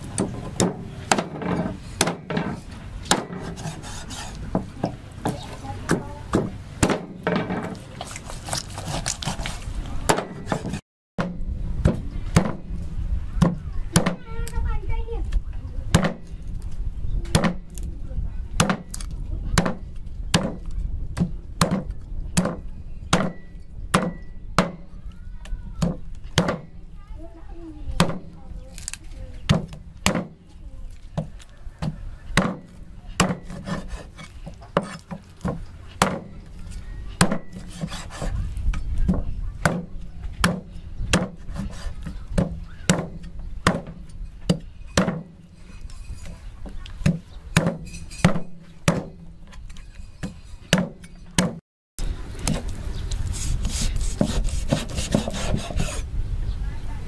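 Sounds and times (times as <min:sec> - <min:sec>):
cleaver chopping on wooden block: 0:18.6 - 0:18.9, 0:21.2 - 0:24.8, 0:25.8 - 0:26.7, 0:31.2 - 0:34.2, 0:34.8 - 0:36.3, 0:39.1 - 0:45.3, 0:54.2 - 0:55.9
scraping: 0:28.3 - 0:51.6.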